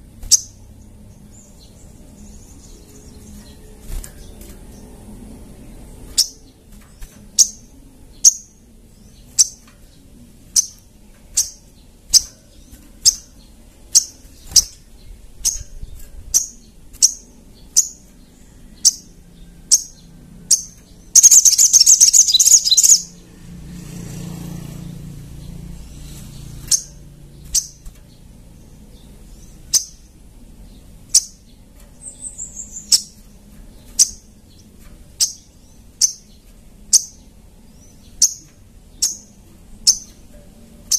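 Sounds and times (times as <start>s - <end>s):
bird rapid chattering: 18.8s - 23.2s, 26.1s - 40.9s
bird calling high notes: 21.2s - 23.1s.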